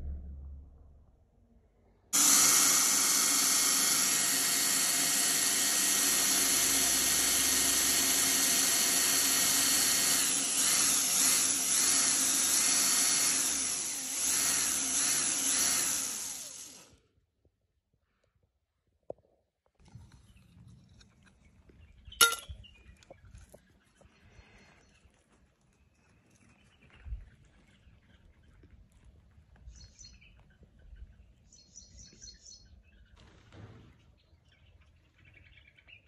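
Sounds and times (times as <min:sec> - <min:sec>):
cordless drill whining: 0:02.2 - 0:17.0.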